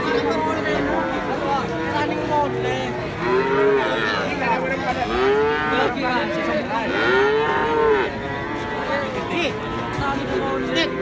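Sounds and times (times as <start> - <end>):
calf mooing: 6.8 - 11.0.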